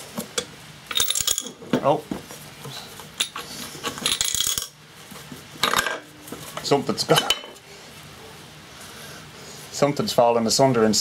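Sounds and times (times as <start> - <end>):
metal parts clinking and clattering: 0.9 - 1.6, 3.2 - 4.8.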